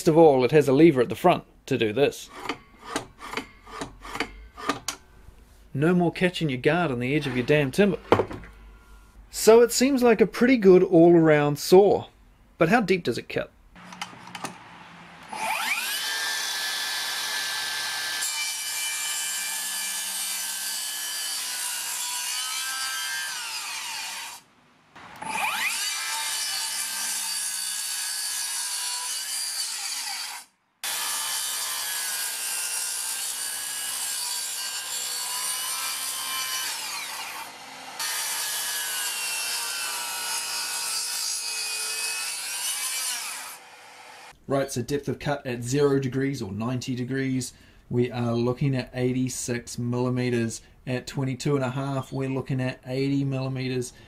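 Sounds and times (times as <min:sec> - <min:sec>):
circular saw cutting timber: 0:02.2 - 0:04.9, 0:13.8 - 0:24.4, 0:25.0 - 0:44.4.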